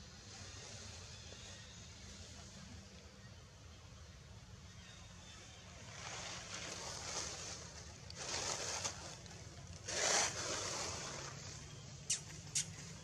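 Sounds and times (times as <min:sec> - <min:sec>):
wind rushing through leaves: 0:05.6 - 0:12.0.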